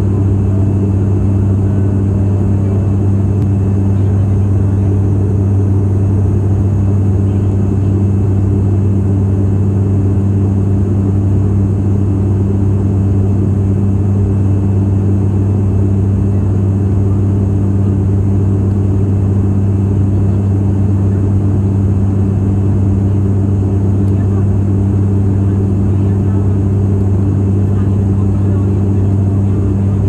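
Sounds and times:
turboprop engine drone in cabin: 0.0s - 30.0s.

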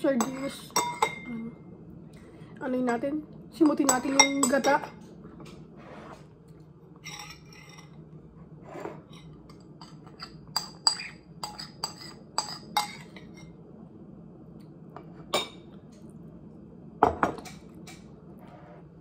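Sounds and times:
metal spoon scraping ceramic bowl: 7.0s - 8.0s, 8.6s - 13.5s.

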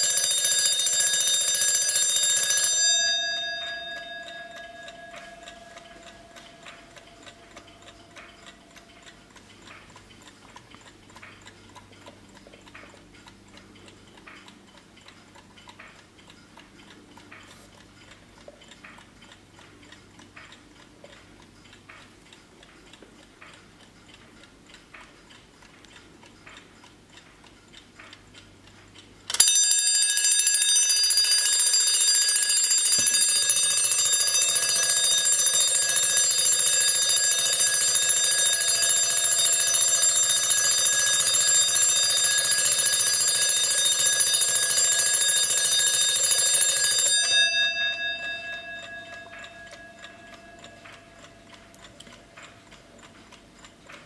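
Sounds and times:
alarm bell ringing: 0.0s - 9.1s, 29.3s - 52.6s
alarm clock ticking: 0.0s - 54.0s.

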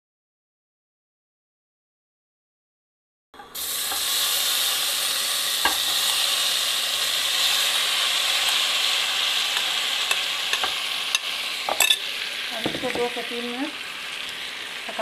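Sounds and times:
cheese frying in hot oil: 3.5s - 15.0s.

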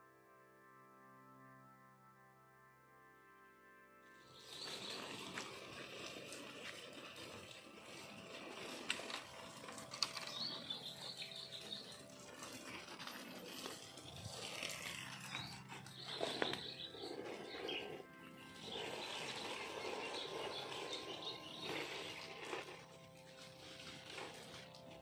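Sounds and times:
faint bird chirping: 8.8s - 12.8s, 15.1s - 22.6s.

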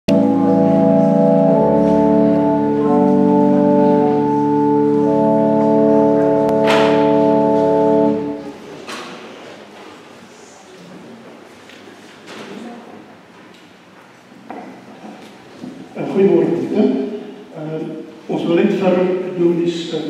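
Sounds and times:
church organ chords: 0.1s - 8.7s.

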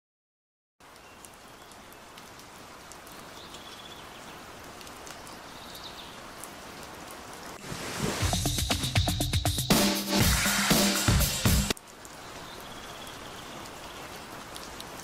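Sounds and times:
steady rain falling: 0.8s - 9.2s, 10.1s - 15.0s
music: 8.0s - 11.8s.

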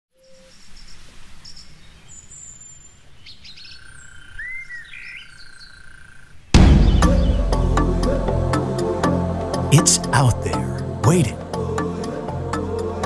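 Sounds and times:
birds chirping and calling: 0.5s - 7.6s.

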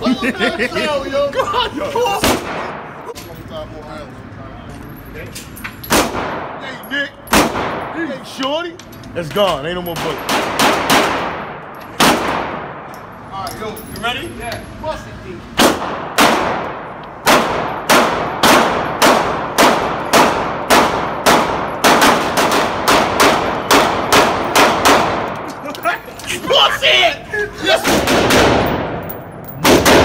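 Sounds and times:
pistol shots with echo: 5.9s - 6.6s, 7.3s - 8.0s, 10.0s - 12.9s, 15.6s - 25.4s, 27.8s - 29.0s, 29.6s - 30.0s.

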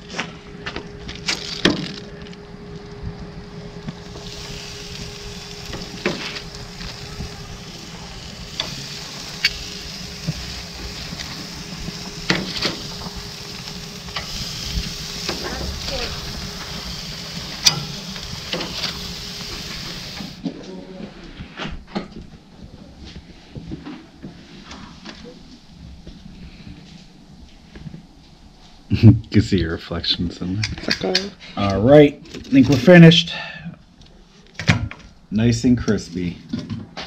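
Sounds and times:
meat sizzling on grill: 1.2s - 20.4s
tongs clicking on grill grates: 4.1s - 15.6s, 16.3s - 19.6s.

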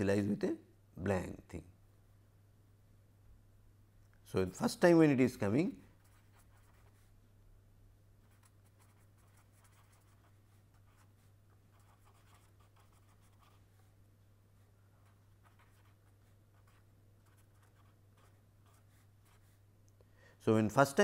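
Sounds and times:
low electrical hum: 0.0s - 21.0s
marker pen scratching on paper: 5.9s - 7.1s, 8.2s - 13.8s, 14.9s - 19.6s.

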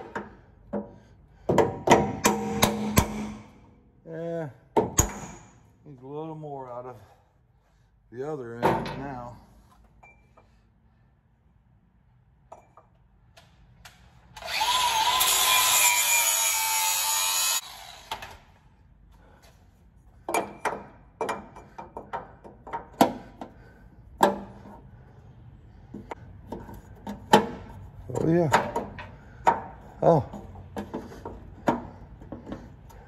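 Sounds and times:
hand-held power tool running: 14.4s - 18.4s.

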